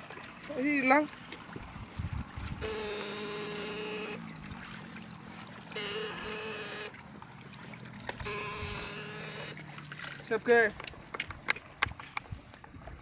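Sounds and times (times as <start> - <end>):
electric fish shocker buzzing: 2.5 - 4.5, 5.6 - 7.3, 7.9 - 10.0.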